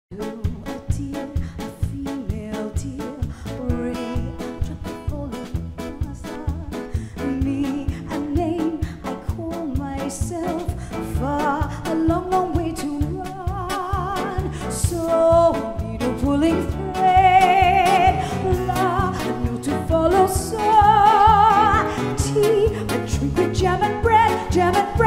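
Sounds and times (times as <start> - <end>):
live band playing: 0.1 - 25.0
woman singing: 0.1 - 25.0.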